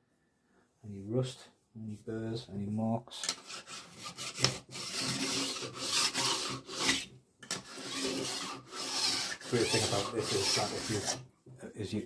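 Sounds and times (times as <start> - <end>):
file rasping on steel: 3.4 - 7.1, 7.7 - 11.2.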